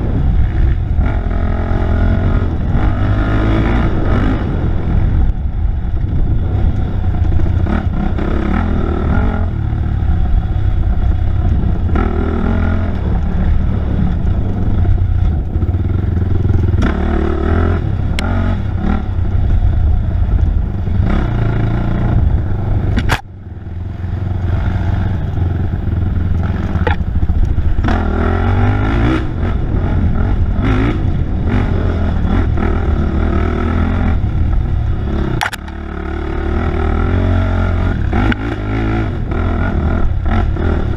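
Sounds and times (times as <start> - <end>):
motorcycle engine revving: 0.0 - 40.9.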